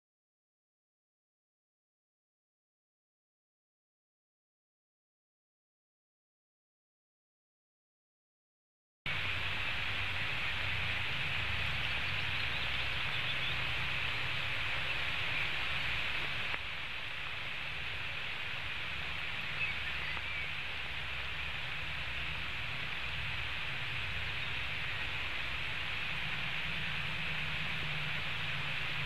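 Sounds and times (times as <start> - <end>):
heavy rain hissing: 9.1 - 29.0.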